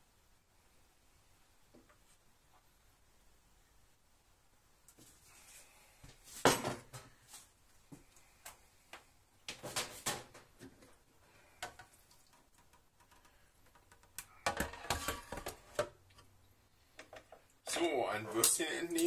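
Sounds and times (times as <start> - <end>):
kitchen items clicking and knocking: 13.8 - 16.0.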